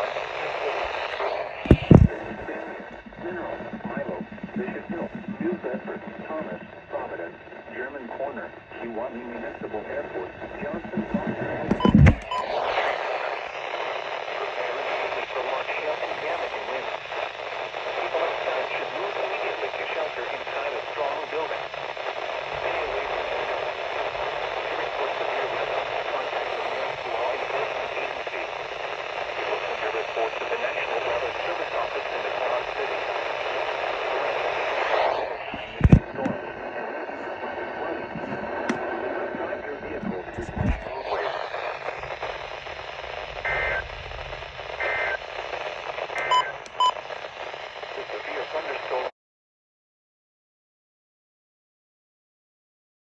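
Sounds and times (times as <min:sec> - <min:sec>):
two-tone data bursts: 0:00.0 - 0:06.9, 0:09.3 - 0:12.6, 0:41.7 - 0:47.1
radio static hiss: 0:00.0 - 0:49.2
short sharp beeps: 0:11.8 - 0:12.5.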